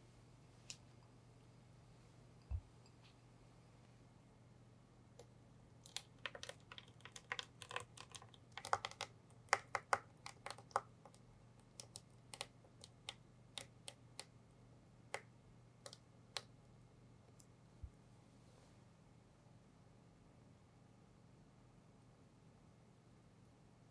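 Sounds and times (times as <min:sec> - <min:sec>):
jelly pouring clicks and taps: 0:05.1 - 0:14.4, 0:15.0 - 0:16.6.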